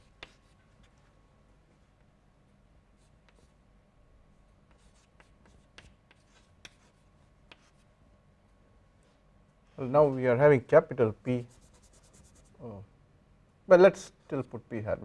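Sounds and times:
chalk scratching on chalkboard: 0.0 - 0.8, 3.0 - 3.6, 4.7 - 7.9, 11.4 - 12.6.

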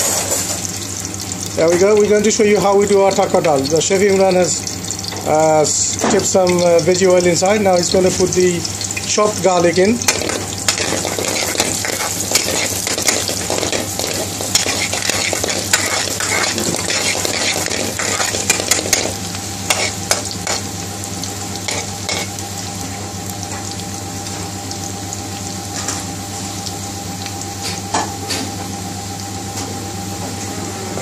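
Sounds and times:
garlic sizzling in hot oil: 0.0 - 30.0
metal utensil scraping pan: 10.1 - 20.6.

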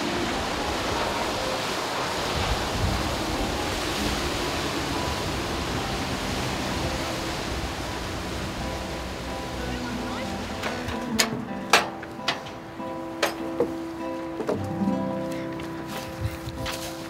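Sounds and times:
wind on microphone: 0.0 - 9.4
rushing water and spray: 0.0 - 17.0.

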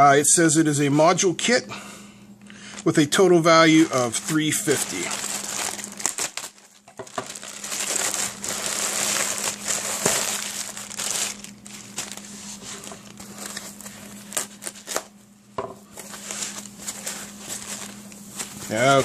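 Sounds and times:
plastic packaging crinkling: 3.6 - 15.2, 15.9 - 19.0.

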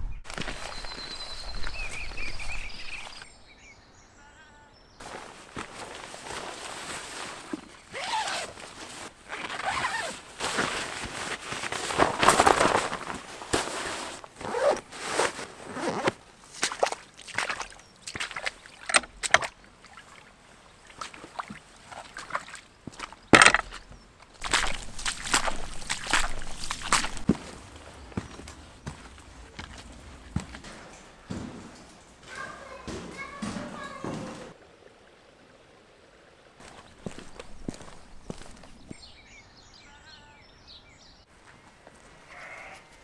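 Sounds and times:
footsteps squelching in mud: 0.3 - 3.3, 5.0 - 34.4, 36.6 - 39.2
jacket and backpack rustling: 0.3 - 3.3, 5.0 - 16.8, 22.9 - 32.8, 36.6 - 39.2.

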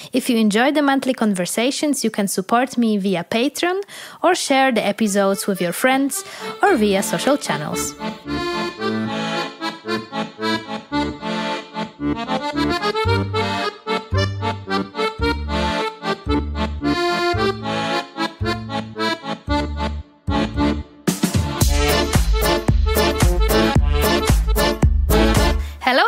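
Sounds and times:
instrumental music: 5.1 - 25.8.

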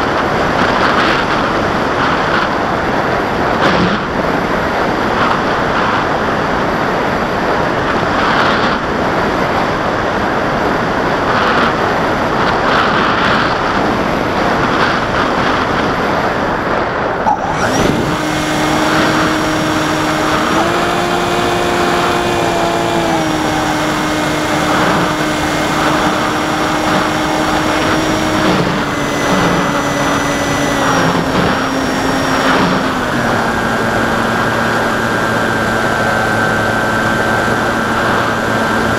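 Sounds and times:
wind on microphone: 0.0 - 38.9
electric motor whine: 17.2 - 38.9.

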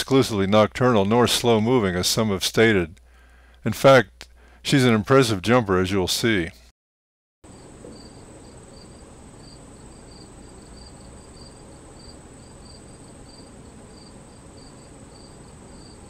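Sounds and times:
insect chirping in pulses: 7.5 - 16.0.

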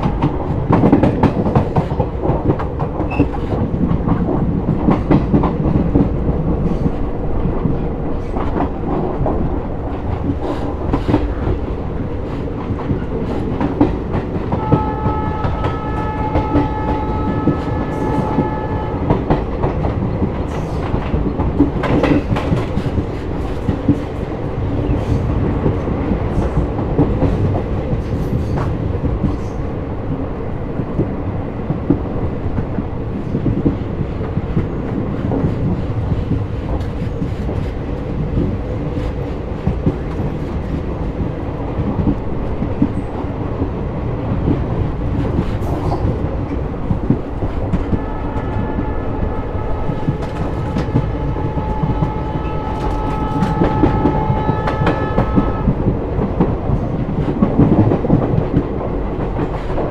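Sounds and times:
clickety-clack over rail joints: 0.0 - 59.9
train wheels rumbling on rails: 0.0 - 59.9
locomotive horn: 14.6 - 19.4, 47.9 - 55.9.

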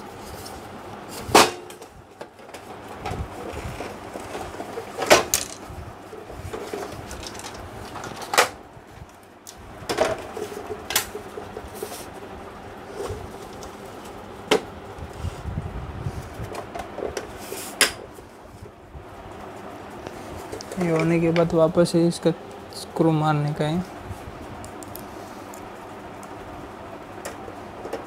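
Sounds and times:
faint rustling and scraping: 10.3 - 12.2.

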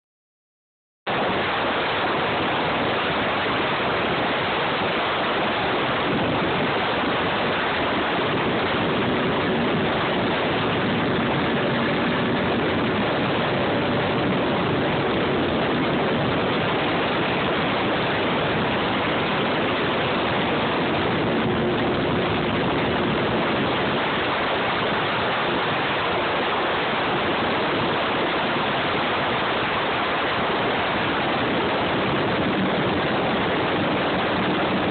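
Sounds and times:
faint engine drone: 1.1 - 34.9
wind and water rushing: 1.1 - 34.9.

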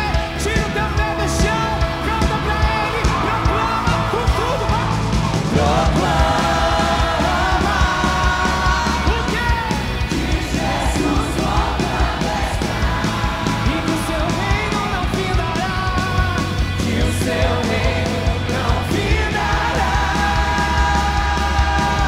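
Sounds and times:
drum beat: 0.0 - 22.0
heavy bass: 0.0 - 22.0.

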